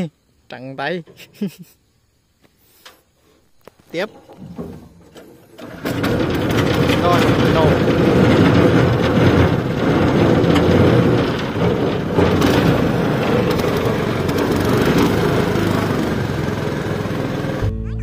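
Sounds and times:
outboard motor rumbling: 4.2 - 17.7.

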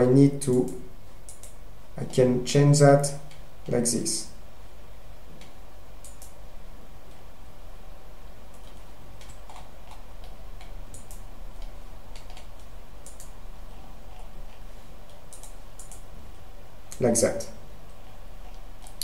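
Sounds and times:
computer mouse clicking: 0.5 - 2.2, 5.4 - 6.4, 8.5 - 16.1, 17.9 - 19.0.

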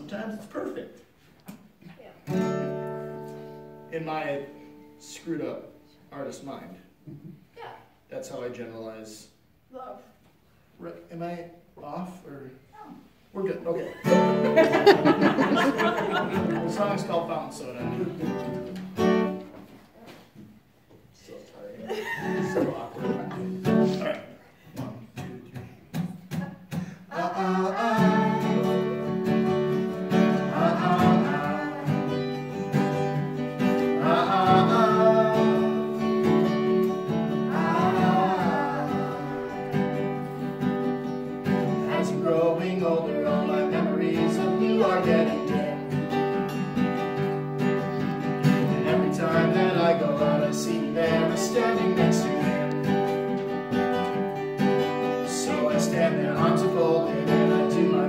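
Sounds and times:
acoustic guitar strumming: 2.2 - 6.4, 13.9 - 19.6, 22.2 - 58.0
man and woman singing: 26.3 - 46.8, 48.4 - 53.3, 54.8 - 58.0.

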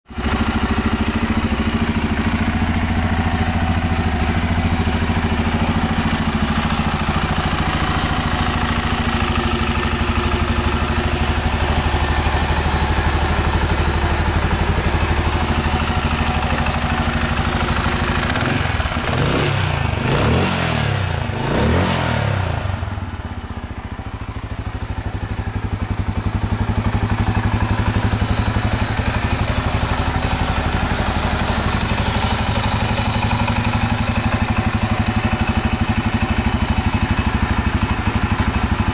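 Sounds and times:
motorcycle engine idling: 0.1 - 38.9
engine revving: 17.6 - 23.1.

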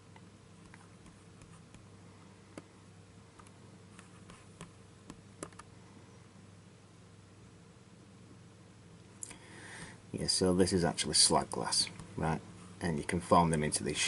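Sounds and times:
faint low hum: 0.0 - 14.0
computer mouse clicking: 4.6 - 5.7.

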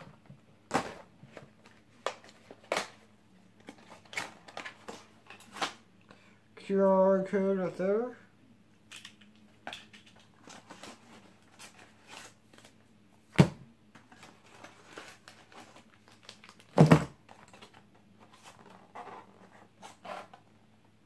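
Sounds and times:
paper and plastic rustling: 3.6 - 5.8, 9.7 - 12.8, 14.0 - 20.5.

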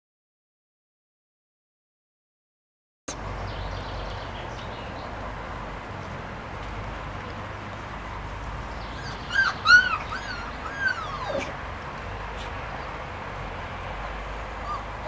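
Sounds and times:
puppy yelping and whining: 8.9 - 11.6, 14.6 - 15.0.

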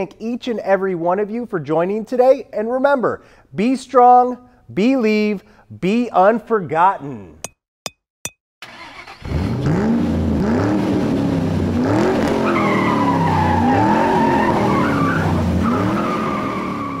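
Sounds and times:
car engine revving: 8.7 - 17.0
tire squeal: 12.2 - 17.0.

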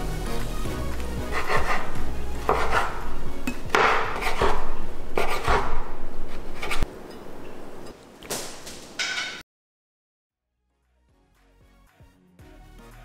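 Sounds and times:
knife chopping on wooden board: 1.3 - 6.8.

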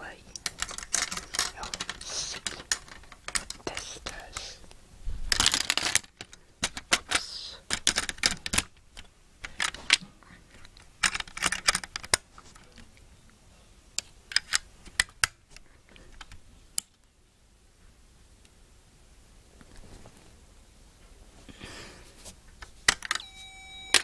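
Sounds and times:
plastic parts clicking and snapping: 0.3 - 4.5, 5.3 - 12.9, 14.0 - 17.1, 22.6 - 23.2.

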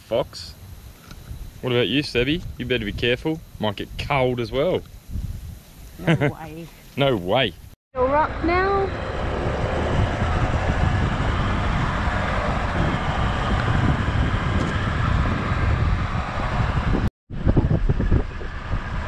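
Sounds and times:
wind buffeting microphone: 0.6 - 7.4, 8.0 - 19.0
vehicle engine and tyre rumble: 6.6 - 19.0.

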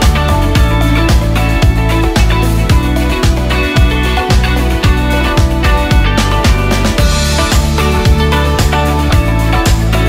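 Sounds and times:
drum beat: 0.0 - 10.0
sustained bass notes: 0.0 - 10.0.

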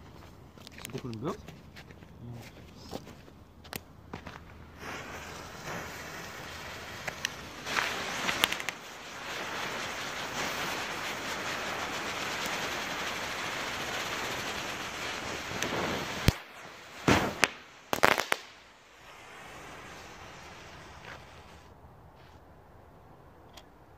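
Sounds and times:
sharp firework cracks: 3.7 - 21.7
ground firework hissing: 4.2 - 21.7.

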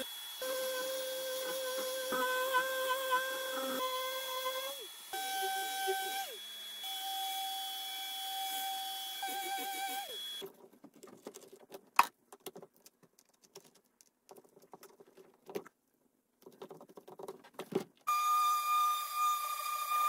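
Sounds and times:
orbital sander whining: 0.0 - 10.4.

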